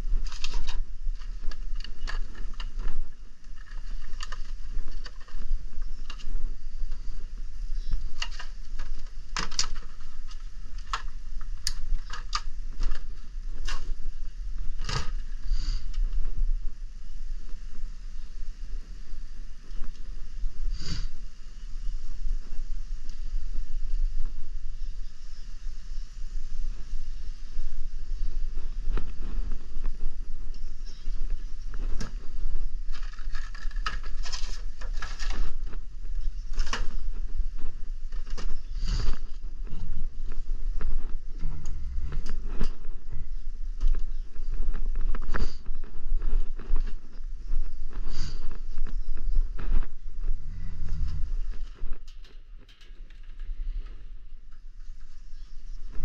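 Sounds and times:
low rumble of handling noise: 0:00.0 - 0:56.0
tools rustling and clattering: 0:07.8 - 0:15.4, 0:32.9 - 0:37.4, 0:51.0 - 0:55.2.

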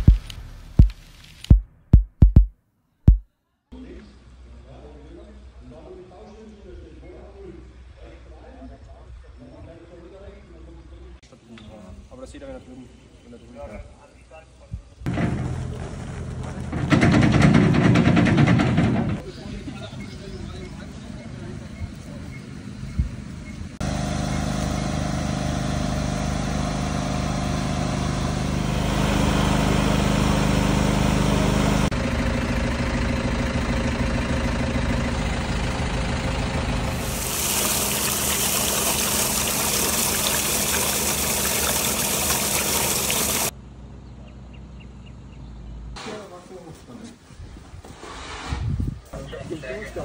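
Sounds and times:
truck engine idling: 0:15.1 - 0:44.6.

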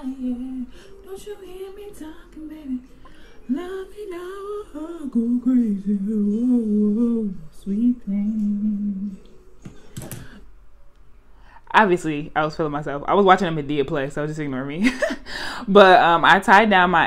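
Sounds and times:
woman humming: 0:04.4 - 0:09.4.

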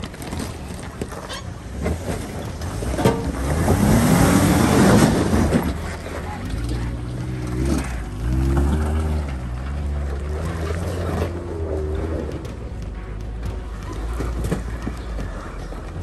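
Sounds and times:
engine revving under load: 0:02.5 - 0:15.3.

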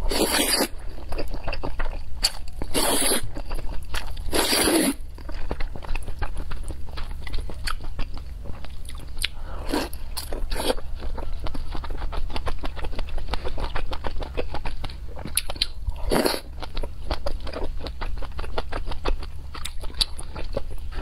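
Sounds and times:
person slurping noodles: 0:00.0 - 0:00.7, 0:02.7 - 0:03.2, 0:04.3 - 0:05.0
wet chewing: 0:00.1 - 0:21.0.

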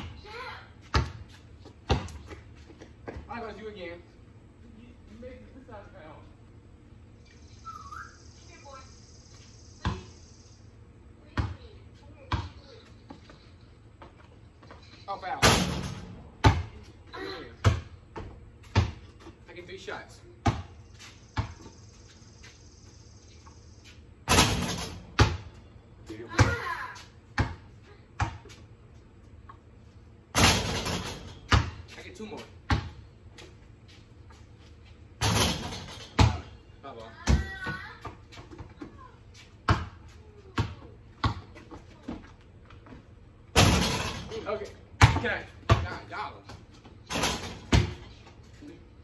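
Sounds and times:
basketball bouncing on concrete: 0:00.8 - 0:03.5, 0:09.8 - 0:10.2, 0:11.2 - 0:13.4, 0:15.8 - 0:16.9, 0:17.6 - 0:19.4, 0:20.3 - 0:21.9, 0:24.3 - 0:25.6, 0:26.2 - 0:28.7, 0:30.3 - 0:33.5, 0:35.2 - 0:36.6, 0:37.2 - 0:48.2.

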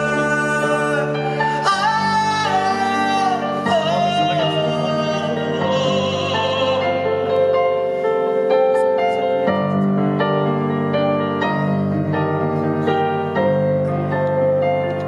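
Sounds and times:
man singing with vibrato: 0:00.0 - 0:07.8.

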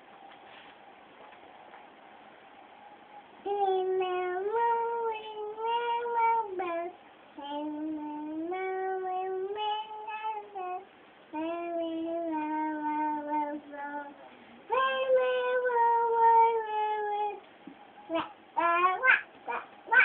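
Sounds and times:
child singing: 0:03.4 - 0:17.4, 0:18.1 - 0:20.0.

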